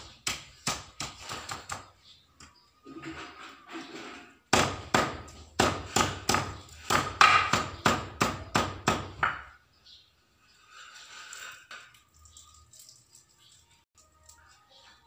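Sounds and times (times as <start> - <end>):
stone pestle pounding in mortar: 4.5 - 9.5.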